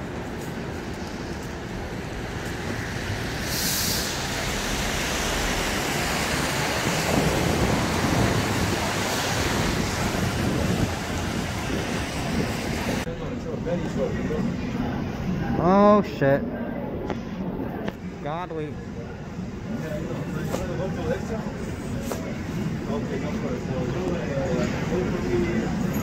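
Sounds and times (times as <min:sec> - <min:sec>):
traffic rumble: 0:00.0 - 0:26.0
tyre hiss on wet road: 0:03.2 - 0:13.0
sharp hiss of air: 0:03.3 - 0:05.3.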